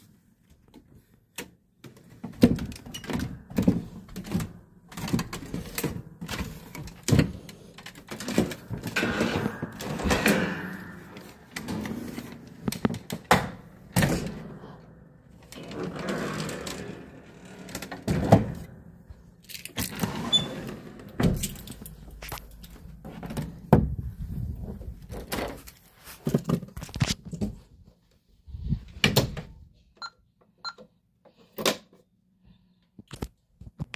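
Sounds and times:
wooden doors knocking and thudding: 2.1 - 12.1, 23.0 - 25.6
doors sliding and rubbing: 2.1 - 26.2.

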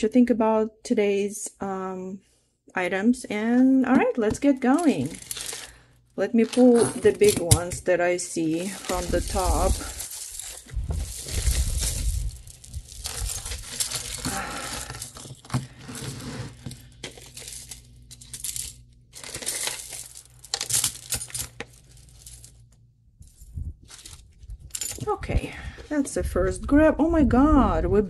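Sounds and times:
jewelry clinking and rattling: 4.7 - 5.8, 6.4 - 22.7, 23.8 - 25.2.

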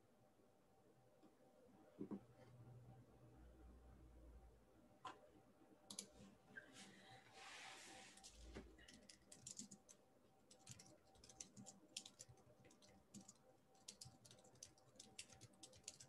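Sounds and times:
keyboard typing clicks: 5.9 - 6.1, 8.8 - 9.9, 10.5 - 16.0.

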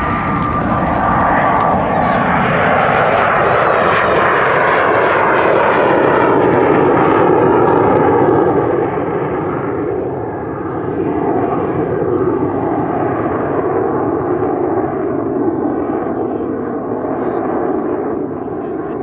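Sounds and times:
jet engine roar: 0.0 - 19.0.

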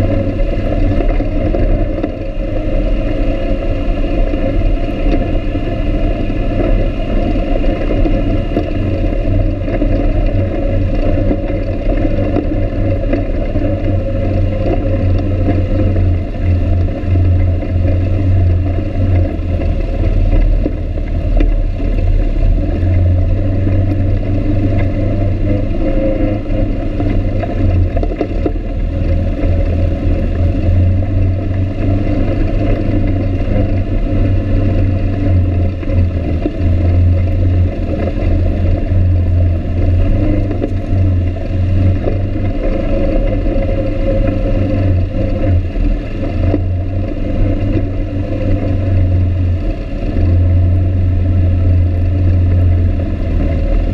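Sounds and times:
atv engine running: 0.0 - 53.9.

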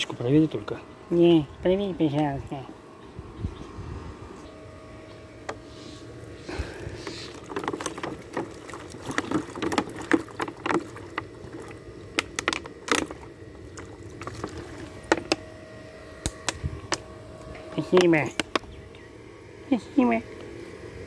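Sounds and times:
water glugging and splashing: 6.8 - 15.4
plastic bottle crackling: 7.3 - 13.2.

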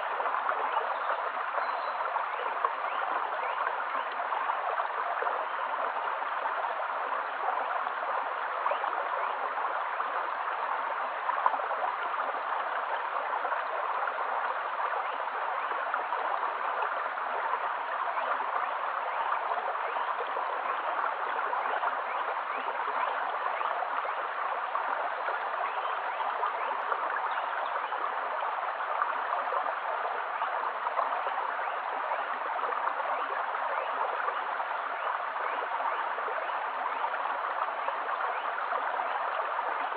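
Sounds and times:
stony creek flowing: 0.0 - 39.9.

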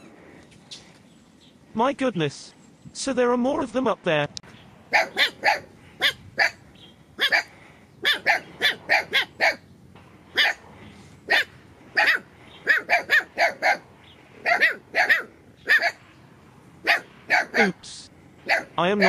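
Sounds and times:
puppy yapping: 4.9 - 6.6, 7.2 - 9.6, 10.3 - 10.6, 11.3 - 13.8, 14.4 - 16.0, 16.8 - 17.8, 18.5 - 18.8.

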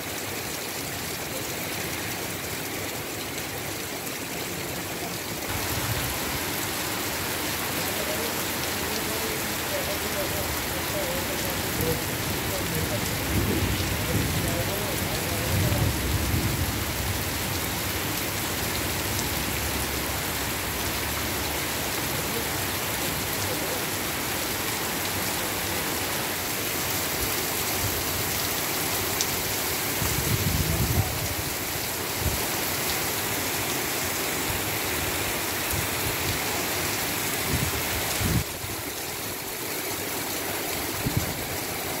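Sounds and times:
heavy rain on street: 0.0 - 42.0.

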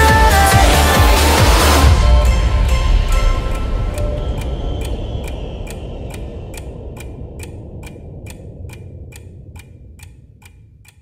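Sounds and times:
low music: 0.0 - 9.3
clock ticking: 1.8 - 11.0.

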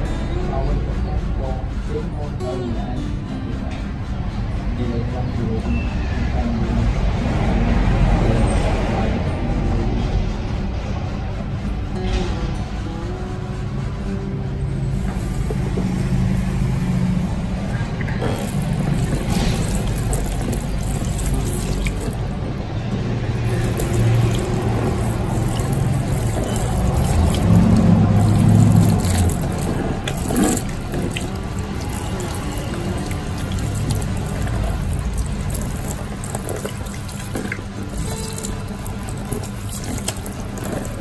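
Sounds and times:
music playing: 0.0 - 41.0
water splashing into basin: 18.0 - 22.5, 23.3 - 41.0
water spraying from shower head: 18.2 - 22.3, 23.4 - 41.0.

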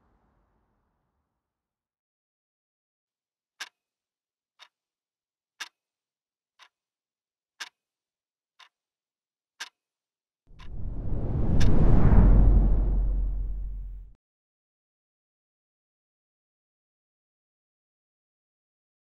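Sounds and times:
clock ticking: 4.6 - 4.8, 5.6 - 5.8, 6.6 - 6.8, 7.6 - 7.8, 8.6 - 8.8, 9.6 - 9.8
loud rushing with deep rumble: 10.6 - 14.2.

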